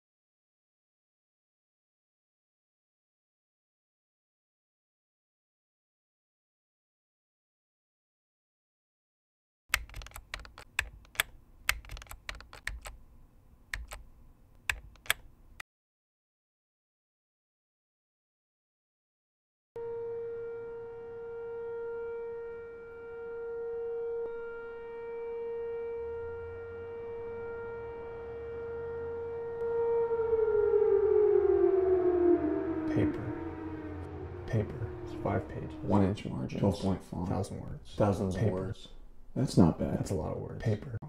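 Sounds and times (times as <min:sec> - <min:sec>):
keyboard keystroke clicks: 0:09.7 - 0:13.0, 0:13.7 - 0:15.3
tone sliding down in pitch: 0:19.8 - 0:37.7
steady held tone: 0:19.8 - 0:39.6.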